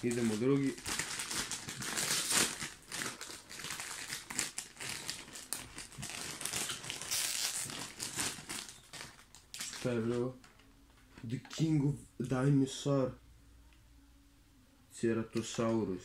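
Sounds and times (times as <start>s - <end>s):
plastic packet crinkling: 0.0s - 10.4s.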